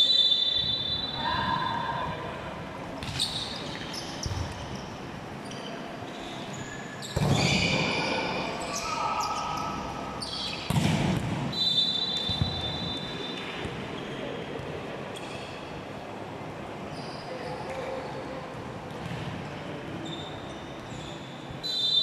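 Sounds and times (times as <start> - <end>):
volleyball struck by hand: 10.7 - 11.5.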